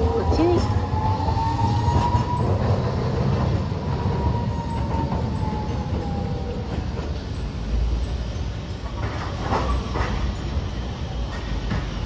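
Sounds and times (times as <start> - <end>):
tram high whine: 0.0 - 12.0
tram rumbling on street track: 0.0 - 12.0.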